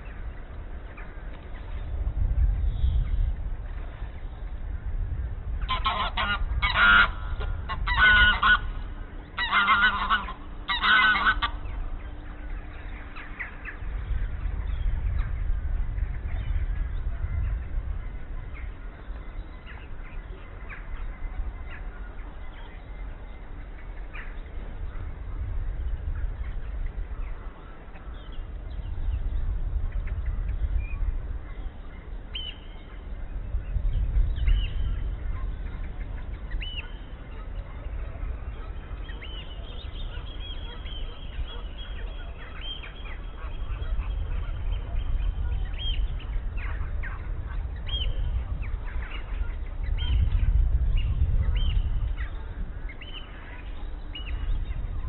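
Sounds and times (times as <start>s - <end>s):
low steady rumble: 0.0s - 55.0s.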